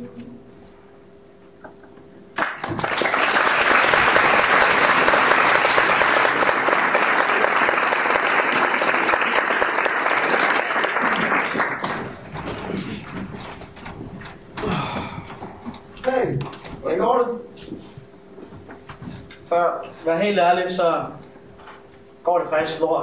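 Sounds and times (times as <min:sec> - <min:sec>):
audience applauding: 0:02.4 - 0:13.1.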